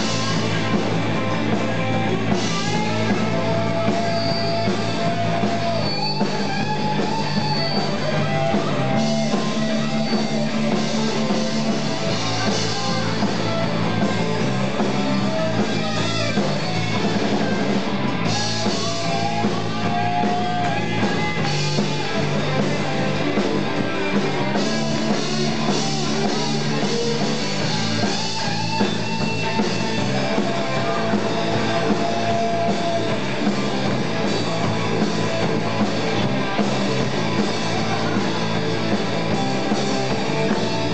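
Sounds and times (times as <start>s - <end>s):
live rock band playing: 0.0s - 40.9s.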